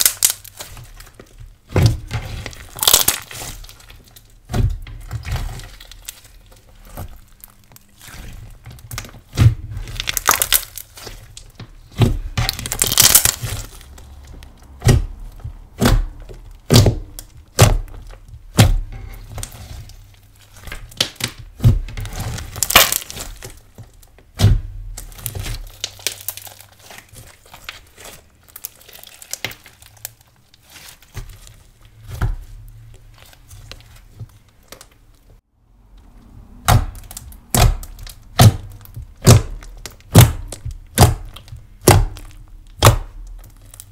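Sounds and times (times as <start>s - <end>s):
slime crackles and pops: 0.0s - 4.3s, 5.0s - 14.0s, 20.5s - 23.6s, 24.4s - 32.2s
slime squelches: 0.0s - 43.9s.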